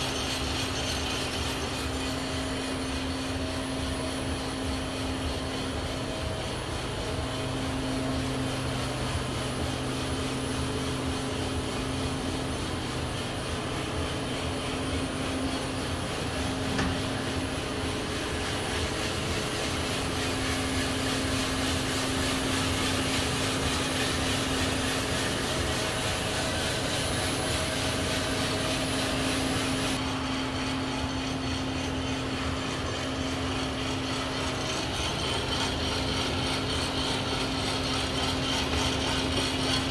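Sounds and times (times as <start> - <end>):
coffee roaster fans and motors: 0.0 - 39.9.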